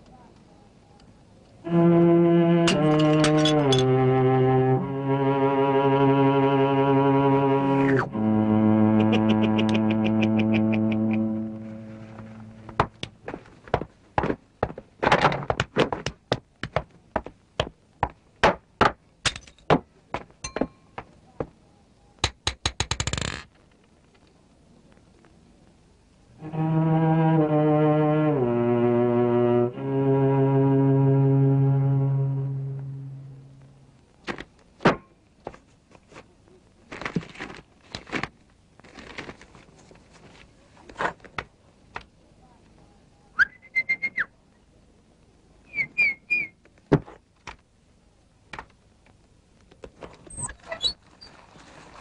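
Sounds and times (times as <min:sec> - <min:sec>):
bowed string chord: 0:01.6 - 0:12.9, 0:26.4 - 0:33.9
sharp knocks and clatters: 0:12.7 - 0:21.1.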